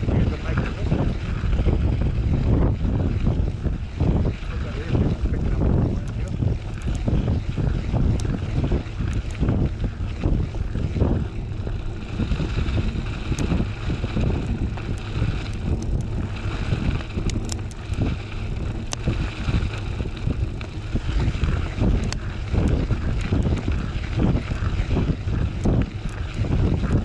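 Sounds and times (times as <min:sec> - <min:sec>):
bike tyre rolling on gravel: 0:00.0 - 0:27.0
wind buffeting microphone: 0:00.0 - 0:27.0
sharp ticks: 0:05.8 - 0:11.0, 0:11.7 - 0:27.0.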